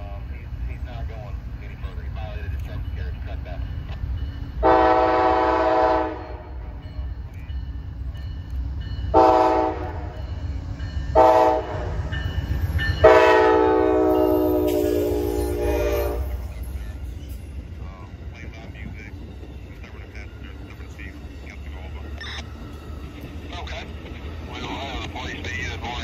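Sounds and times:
train rumble: 0.0s - 26.0s
locomotive air horn blasts: 4.6s - 6.5s, 9.1s - 10.2s, 11.2s - 12.0s, 13.0s - 16.5s.

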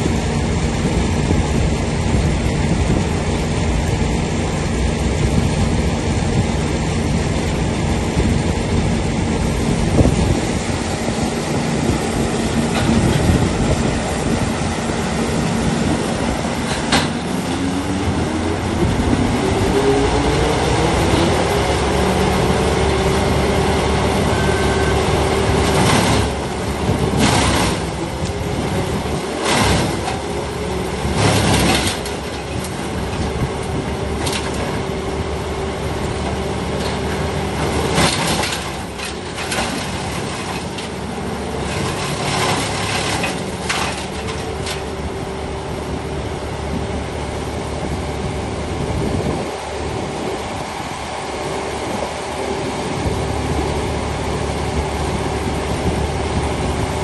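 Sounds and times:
wood chipper engine running: 0.0s - 57.0s
branches cracking and grinding: 36.1s - 45.0s.

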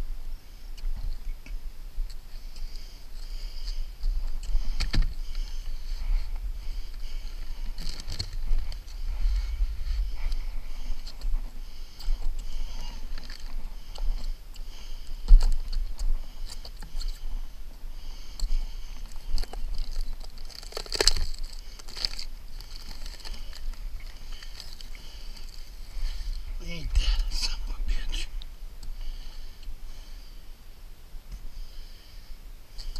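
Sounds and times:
steady low rumble: 0.0s - 32.9s
release paper crinkling and rustling: 6.9s - 9.0s, 18.2s - 27.3s.

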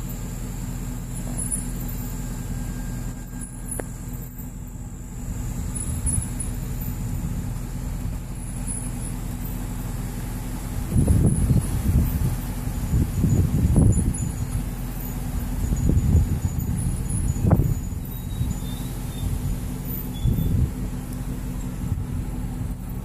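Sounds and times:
low mechanical hum: 0.0s - 23.0s
faint high-pitched chirps: 11.3s - 20.8s.

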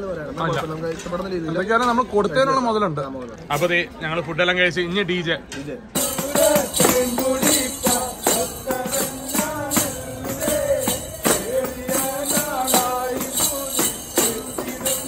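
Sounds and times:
group singing: 6.0s - 15.0s
tambourines: 6.0s - 15.0s.

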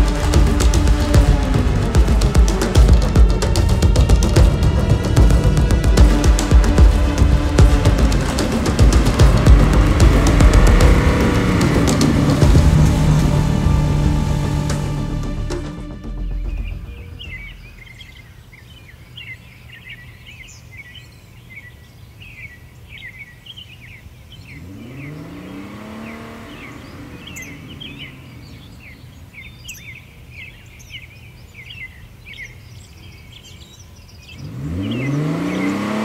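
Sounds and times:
truck engine revving: 0.0s - 17.8s, 24.5s - 29.0s, 34.4s - 36.0s
low steady hum: 0.0s - 18.5s
small birds chirping: 16.2s - 36.0s.

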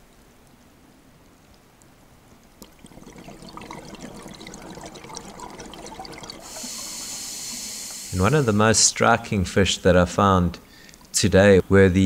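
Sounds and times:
small clicks and crackles: 0.0s - 2.8s
underwater bubbling: 2.5s - 8.8s
steady high hiss: 6.4s - 12.0s.

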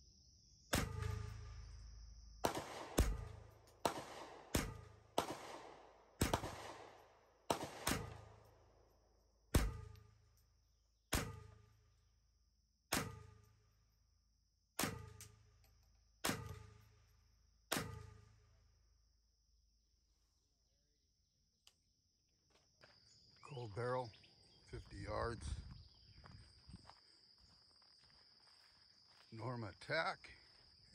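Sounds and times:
rifle shots with echo: 2.4s - 8.6s, 9.5s - 10.1s.

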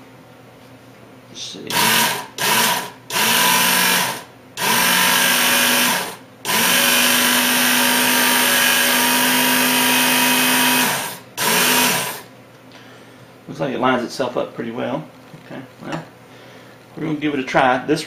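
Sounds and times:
electric sharpener motor and belt: 1.7s - 12.3s.

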